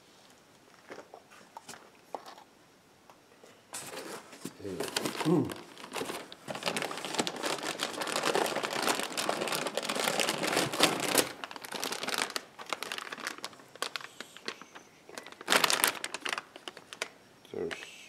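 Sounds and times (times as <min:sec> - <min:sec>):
plastic packaging crinkling: 0:03.8 - 0:17.8.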